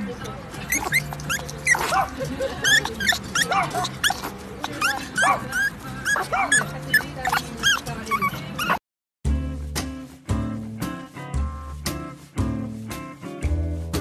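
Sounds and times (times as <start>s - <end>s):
background music: 0.0s - 14.0s
small dog whining: 0.6s - 8.8s.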